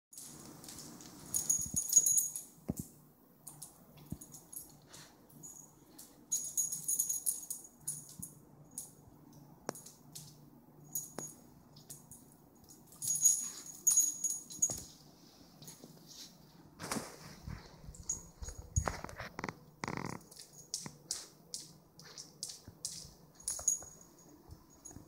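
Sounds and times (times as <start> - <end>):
claws clicking on hard floor: 18.0 - 25.0.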